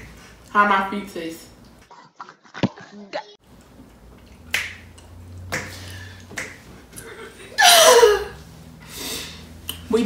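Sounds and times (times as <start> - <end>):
sharp snaps: 4.5 - 6.6.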